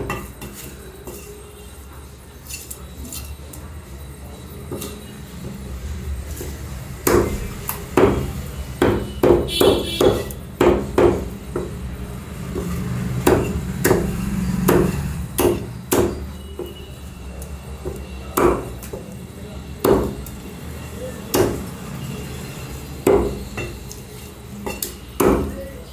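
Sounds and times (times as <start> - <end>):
meat cleaver chopping on wood: 7.0 - 11.7, 12.5 - 16.8, 17.8 - 19.0, 19.8 - 20.4, 21.3 - 21.7, 23.0 - 24.0, 24.7 - 25.7.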